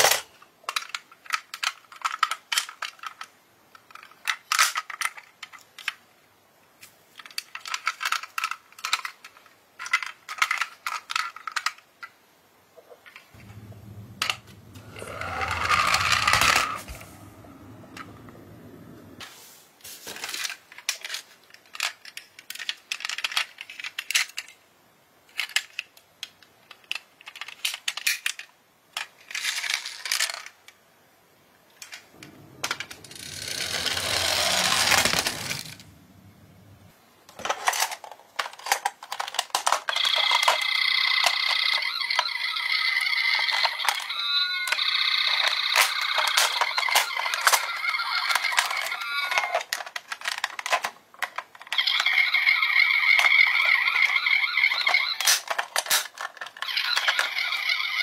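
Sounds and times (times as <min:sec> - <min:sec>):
toy cars rolling on wood: 0:00.0 - 0:06.0, 0:07.1 - 0:12.2, 0:13.1 - 0:19.2, 0:20.0 - 0:24.6, 0:25.3 - 0:30.8, 0:31.8 - 0:36.0, 0:37.3 - 0:58.0
metal toy cars clinking in box: 0:20.1 - 0:24.5, 0:26.7 - 0:30.6, 0:31.8 - 0:35.8, 0:37.4 - 0:42.4, 0:43.0 - 0:58.0
toy siren high tones: 0:40.0 - 0:49.6, 0:51.8 - 0:55.3, 0:56.7 - 0:58.0.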